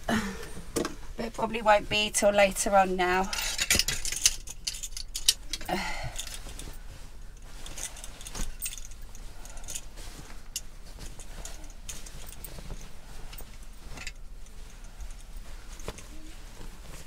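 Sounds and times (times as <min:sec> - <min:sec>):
fabric rustling: 0:01.0 - 0:17.0
plastic hangers clicking together: 0:03.1 - 0:06.7.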